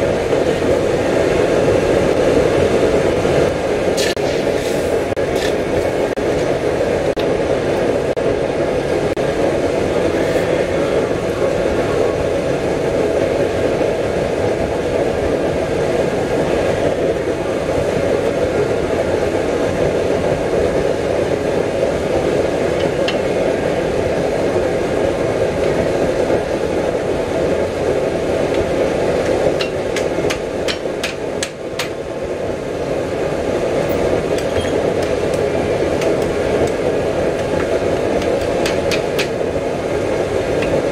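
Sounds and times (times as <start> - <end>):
steady rushing noise: 0.0 - 40.9
hammer striking steel on anvil: 29.6 - 32.0, 37.4 - 39.4.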